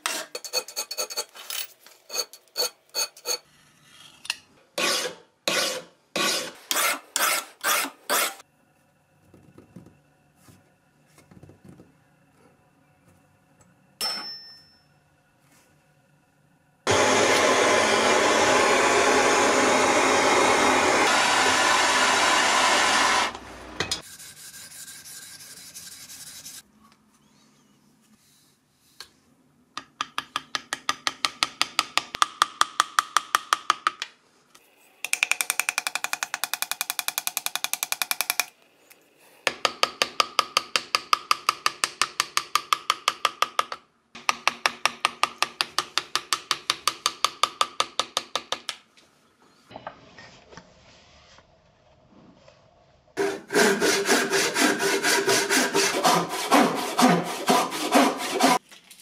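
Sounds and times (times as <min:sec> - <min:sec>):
power tool running: 0:16.9 - 0:23.9, 0:53.2 - 0:58.6.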